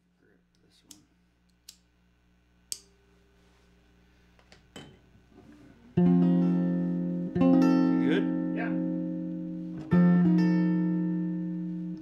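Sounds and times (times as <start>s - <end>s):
faint electrical hum: 0.0s - 12.0s
guitar chord strummed: 6.0s - 12.0s.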